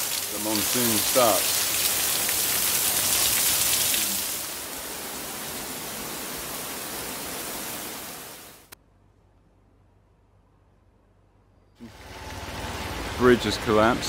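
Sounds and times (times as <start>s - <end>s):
heavy rain pouring: 0.0s - 8.8s.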